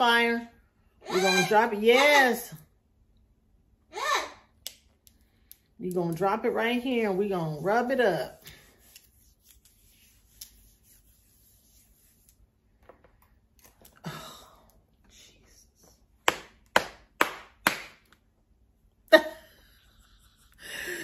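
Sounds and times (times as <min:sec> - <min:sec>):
handling with faint clicks: 0:04.6 - 0:06.3.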